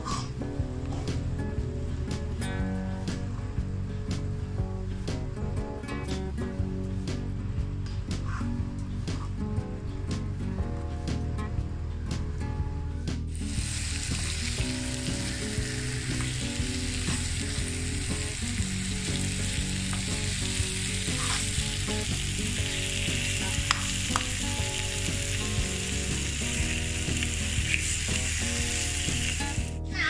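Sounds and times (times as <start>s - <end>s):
background music with low notes: 0.0s - 30.0s
prawns sizzling in oil: 13.3s - 29.8s
fork clicking against a pan: 23.6s - 24.3s.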